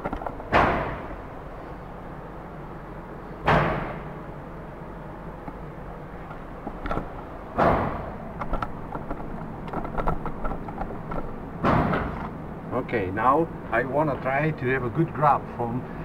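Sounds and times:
handling clicks and knocks: 6.2 - 12.4.

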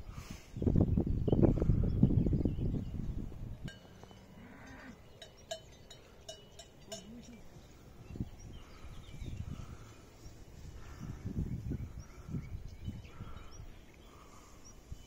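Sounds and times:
metallic bell clanks: 3.7 - 7.6
faint low animal calls: 3.9 - 14.9.

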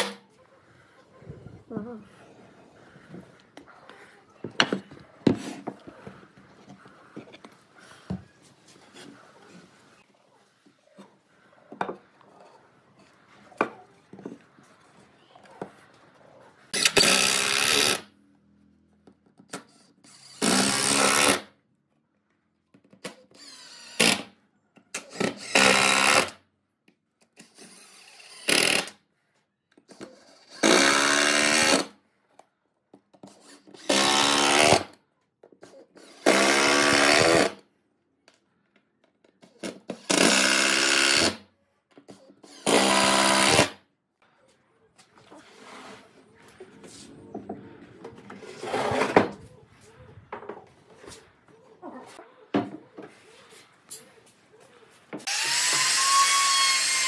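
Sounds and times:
power tool bursts: 40.0 - 41.4, 42.4 - 43.8, 55.3 - 57.0.

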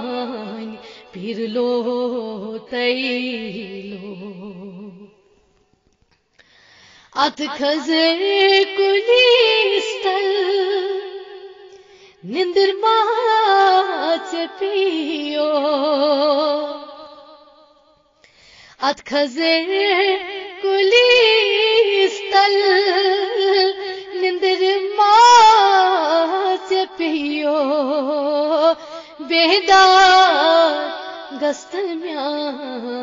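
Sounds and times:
woman singing with vibrato: 0.0 - 5.4, 7.2 - 17.8, 18.8 - 33.0.

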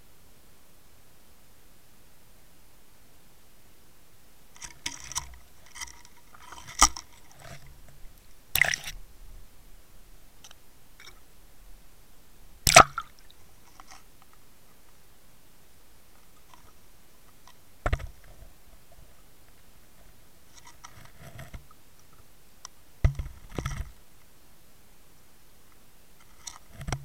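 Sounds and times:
water splashing: 8.5 - 9.0, 12.6 - 13.4.

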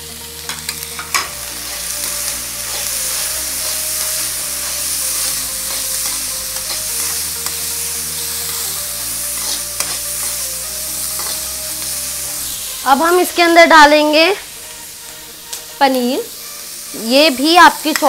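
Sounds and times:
vegetables sizzling in oil: 0.0 - 18.0
metal spoon scraping and tapping pan: 0.5 - 1.8, 5.6 - 7.6, 9.4 - 10.4, 11.2 - 11.4.

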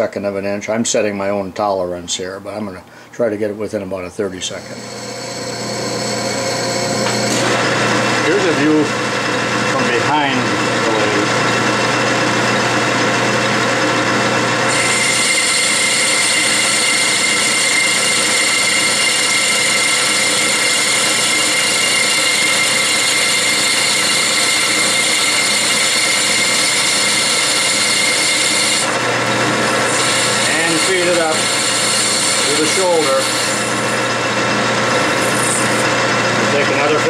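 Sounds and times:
metal lathe running: 4.4 - 37.0
lathe tool cutting brass: 4.5 - 37.0
high steady ring: 4.6 - 7.4.

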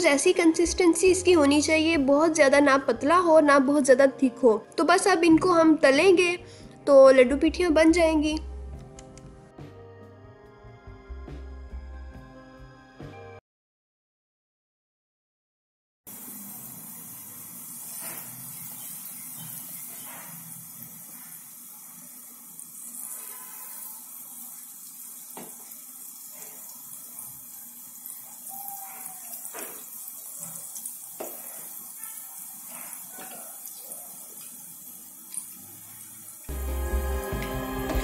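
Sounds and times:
batter crackling in oil: 16.1 - 36.5
deep-frying sizzle: 16.1 - 38.0.

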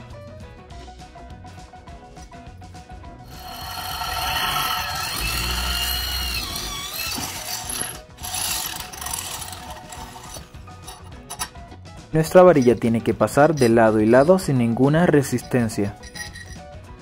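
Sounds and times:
electric drill boring metal: 3.3 - 11.5, 16.0 - 16.6.

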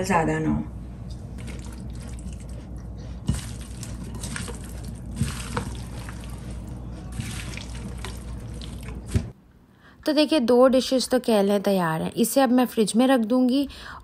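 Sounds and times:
wet mixing sounds: 1.4 - 9.4.

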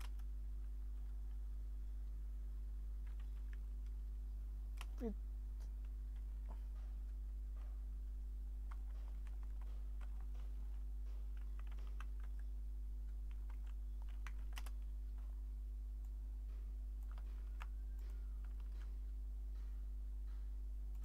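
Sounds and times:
keyboard keystrokes clicking: 0.0 - 0.3, 8.6 - 12.5, 13.1 - 14.9, 17.0 - 19.0
steady low hum: 0.0 - 21.0.

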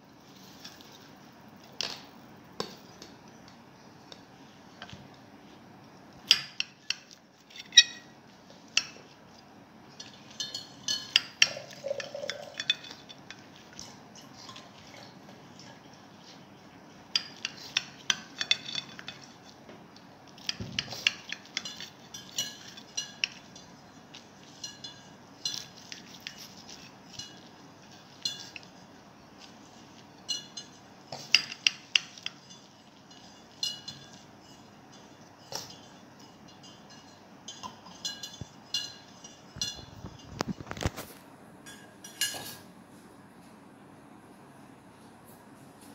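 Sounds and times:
spatula clinking on glass plate: 6.3 - 8.1, 10.0 - 13.4, 20.4 - 28.8, 29.9 - 40.4.

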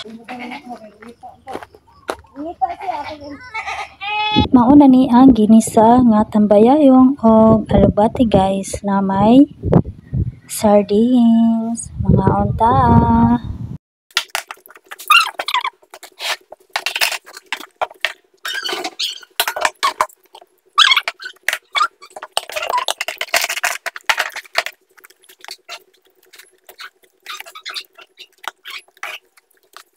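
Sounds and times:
person chewing and lip smacking: 24.3 - 29.9.

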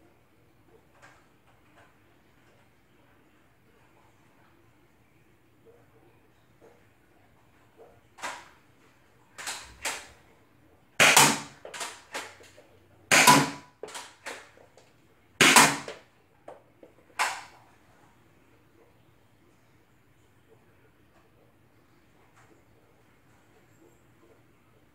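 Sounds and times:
toy blaster clacks and pops: 8.2 - 8.5, 9.4 - 10.1, 11.0 - 14.5, 15.4 - 16.0, 17.2 - 17.5.

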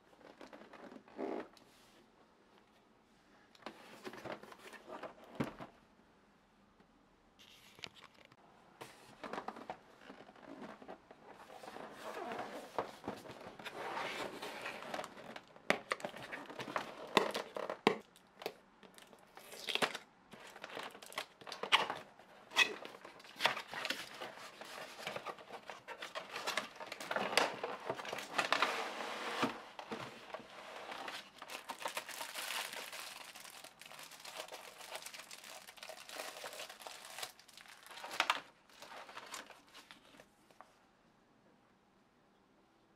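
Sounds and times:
paper and plastic crinkling: 9.2 - 17.9, 18.8 - 40.6.

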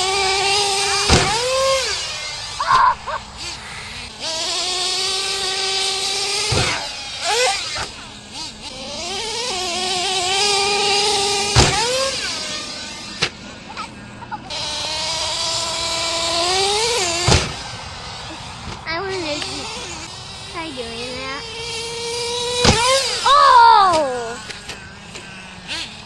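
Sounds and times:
sharp thumps: 0.0 - 26.0
small nitro engine revving: 0.0 - 26.0.

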